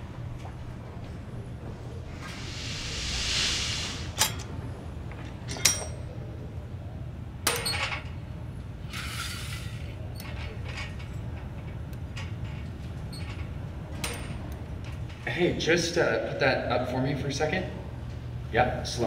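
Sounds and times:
low steady hum: 0:00.0 - 0:08.9
brief hiss: 0:02.1 - 0:04.5.

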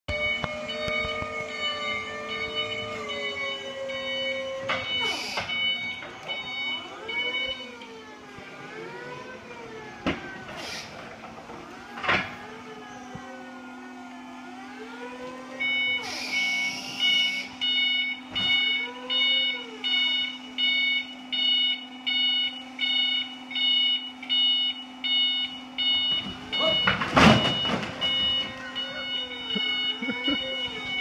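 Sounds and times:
forklift warning beeper: 0:00.1 - 0:09.2, 0:15.5 - 0:31.0
electric forklift motor whine: 0:00.1 - 0:31.0.

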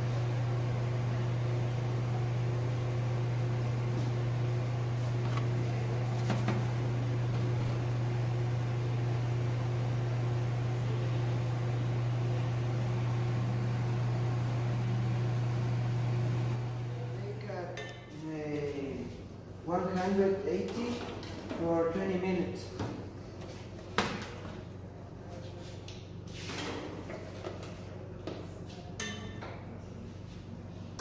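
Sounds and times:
machine motor humming: 0:01.2 - 0:17.0.

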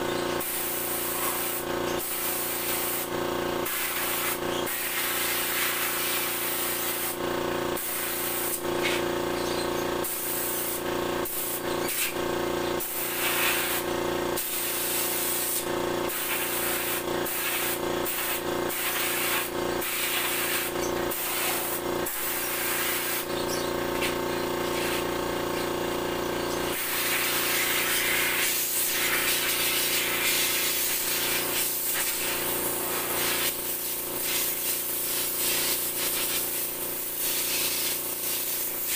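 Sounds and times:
compressed air blow gun hissing: 0:03.7 - 0:07.2, 0:07.8 - 0:09.0, 0:16.2 - 0:23.3, 0:26.7 - 0:38.9.

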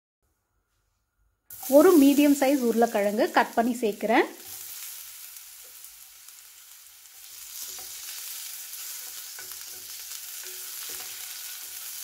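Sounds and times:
potatoes sizzling in hot oil: 0:01.5 - 0:12.0.

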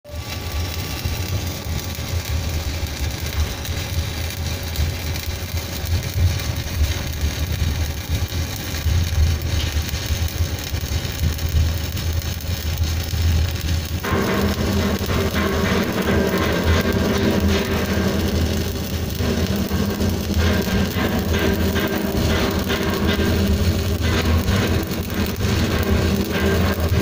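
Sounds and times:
welding arc crackling and sizzling: 0:00.0 - 0:27.0
low drone: 0:14.0 - 0:27.0.

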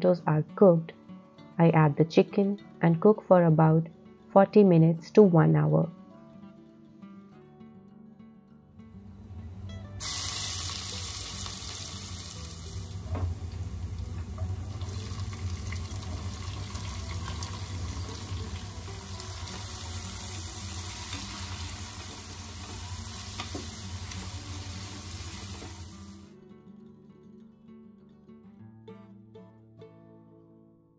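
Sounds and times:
oil sizzling in a pot: 0:10.0 - 0:26.3.

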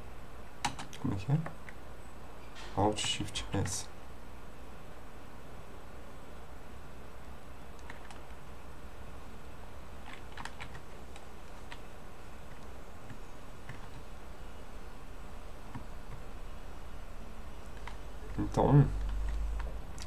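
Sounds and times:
low hum: 0:00.0 - 0:20.0
keyboard keys clicking: 0:00.6 - 0:01.8, 0:07.8 - 0:08.4, 0:10.0 - 0:11.9, 0:12.5 - 0:14.0, 0:17.7 - 0:20.0.

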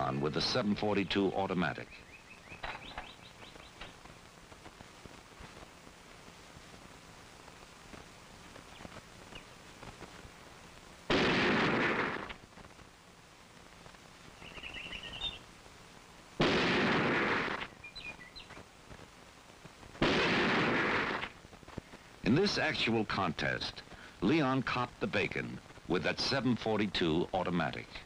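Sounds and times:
rifle shots ringing: 0:11.1 - 0:12.4, 0:16.4 - 0:17.7, 0:20.0 - 0:21.3.

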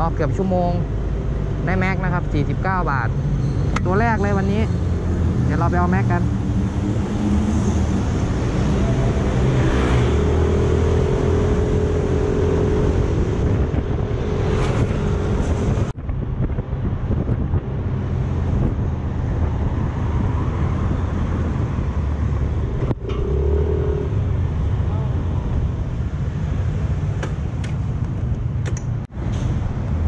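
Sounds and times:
road traffic noise: 0:00.0 - 0:30.0.

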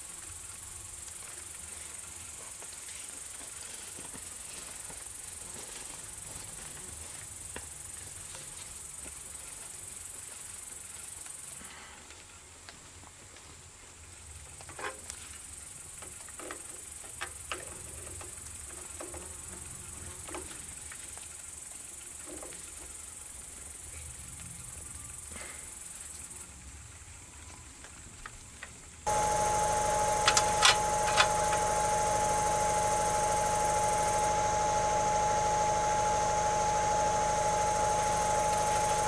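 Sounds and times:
steady high hiss: 0:29.1 - 0:39.0.

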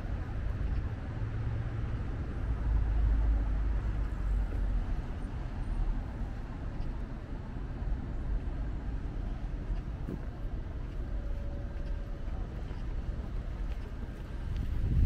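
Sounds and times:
rumble of passing vehicles: 0:00.0 - 0:15.0.

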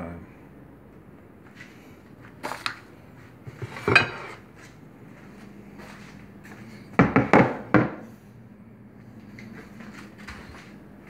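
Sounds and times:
ceramic plates clattering: 0:03.5 - 0:04.4.

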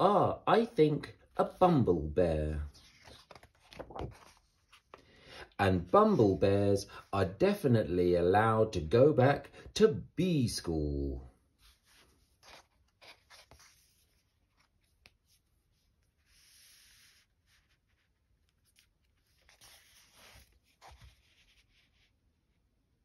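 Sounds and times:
paper rustling: 0:02.7 - 0:05.0, 0:11.6 - 0:22.2
paper sliding: 0:02.7 - 0:05.0, 0:16.2 - 0:22.2.

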